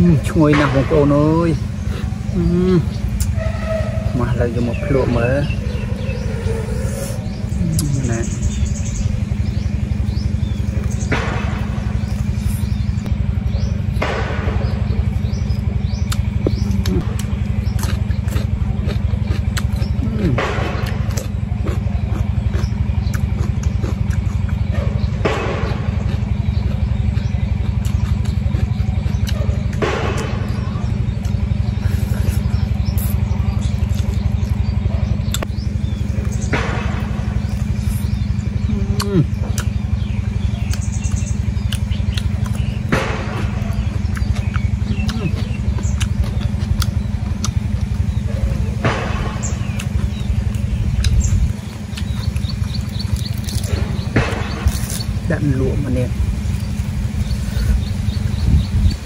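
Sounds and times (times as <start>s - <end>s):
birds chirping faintly: 0.0s - 59.0s
small engine rumbling: 0.0s - 59.0s
bone crunching: 32.2s - 55.3s.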